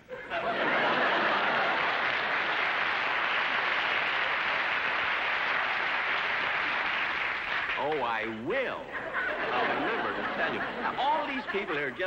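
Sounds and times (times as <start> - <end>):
audience applauding: 0.4 - 8.5.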